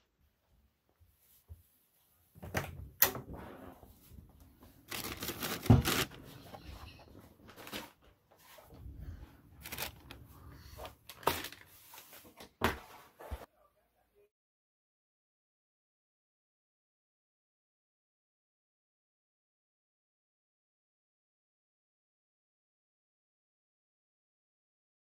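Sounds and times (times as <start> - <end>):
footsteps walking: 9.6 - 10.2.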